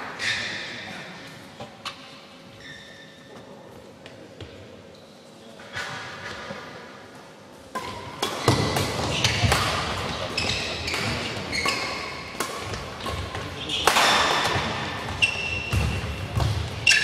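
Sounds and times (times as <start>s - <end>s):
shoe squeaks: 2.6s - 3.3s, 10.4s - 12.2s, 15.1s - 15.9s
rackets striking shuttlecock: 7.7s - 17.0s.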